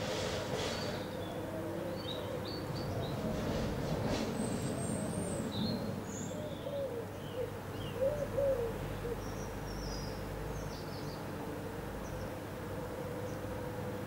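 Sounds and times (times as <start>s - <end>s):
low arching bird calls: 4.3s - 11.1s.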